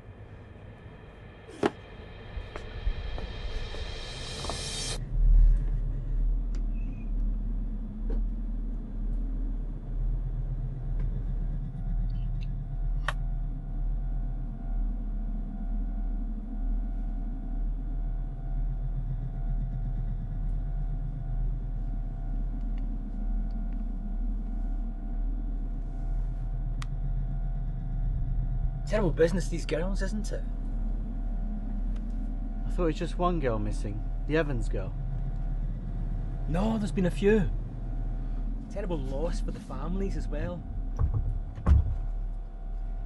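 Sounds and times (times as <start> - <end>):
deep rumbling drone: 0.0 - 43.0
low boom: 30.4 - 43.0.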